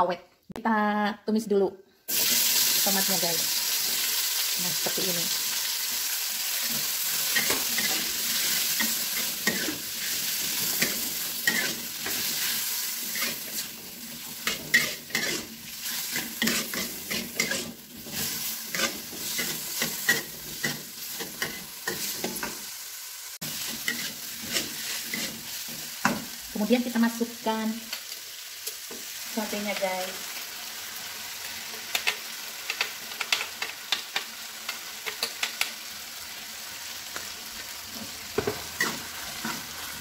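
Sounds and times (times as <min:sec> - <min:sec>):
vegetables sizzling in hot oil: 0:02.1 - 0:40.0
metal spatula scraping a pan: 0:06.4 - 0:22.7, 0:23.4 - 0:26.4.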